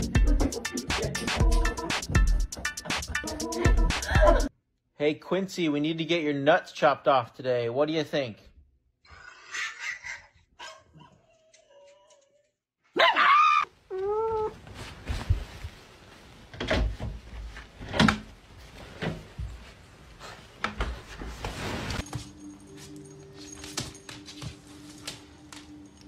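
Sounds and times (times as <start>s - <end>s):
dog crying: 3.0s - 4.5s
knocks and rustling: 14.6s - 22.5s.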